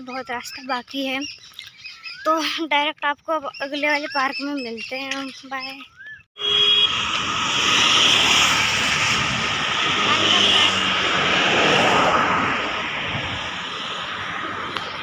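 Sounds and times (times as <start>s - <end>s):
road traffic passing: 6.4s - 15.0s.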